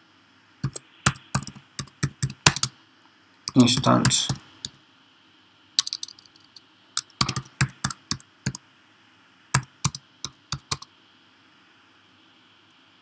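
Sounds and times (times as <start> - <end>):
keyboard typing clicks: 0.6 - 2.7, 5.8 - 6.2, 7.0 - 8.6, 9.6 - 10.9.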